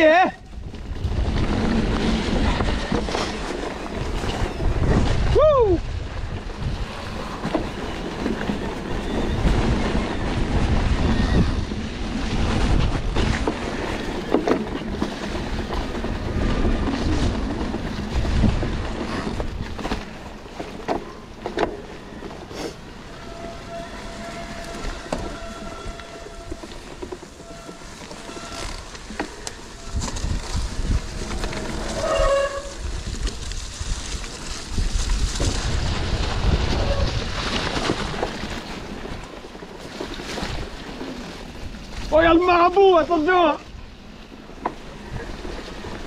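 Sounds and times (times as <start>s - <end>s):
wind buffeting microphone: 0.0s - 20.6s, 28.2s - 42.2s
bike rumbling on dirt trail: 0.0s - 46.0s
short falling squeal: 8.9s - 10.3s, 31.7s - 32.8s.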